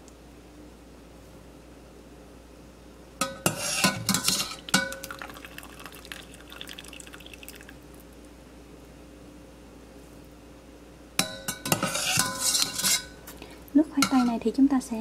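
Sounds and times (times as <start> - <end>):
water trickling and dripping: 4.6 - 8.0.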